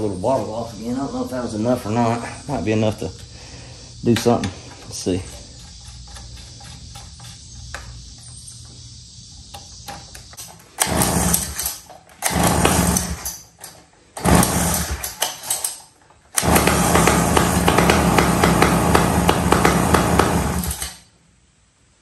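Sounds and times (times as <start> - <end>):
outboard motor pull-starting: 10.8 - 15.8, 16.4 - 21.0
outboard motor running: 12.3 - 13.2, 16.4 - 20.6.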